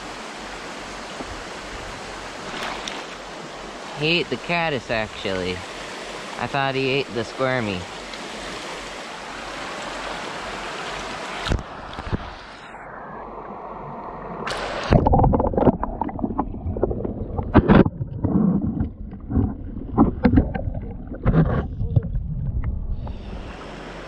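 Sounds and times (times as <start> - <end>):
creek water rushing: 0.0 - 17.2, 23.1 - 24.0.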